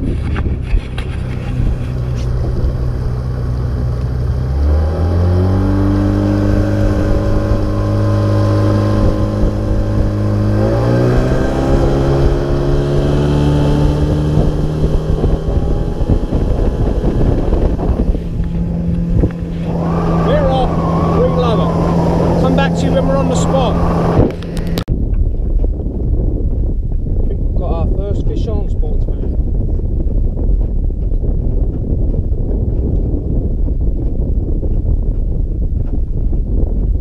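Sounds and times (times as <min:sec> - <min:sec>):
boat engine revving: 0:00.0 - 0:24.9.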